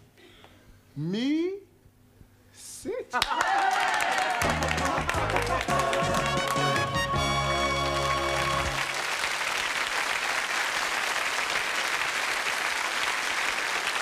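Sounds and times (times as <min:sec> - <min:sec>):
audience applause: 0:03.2 - 0:14.0
sitcom theme music: 0:04.4 - 0:08.9.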